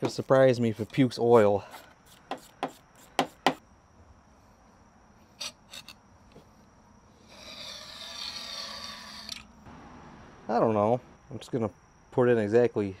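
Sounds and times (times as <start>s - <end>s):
raspy rattling scrape: 7.2s - 9.4s.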